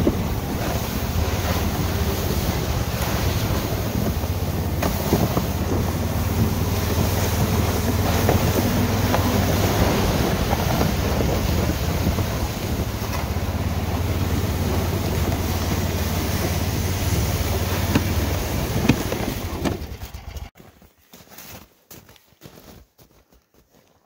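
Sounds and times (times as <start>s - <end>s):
small gasoline engine running: 0.0s - 20.5s
wind buffeting microphone: 0.0s - 20.5s.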